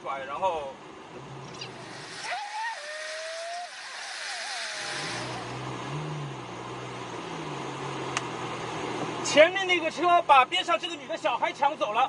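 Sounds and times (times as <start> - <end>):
road and wind noise: 0.0 - 12.0
car engine revving: 1.2 - 8.2.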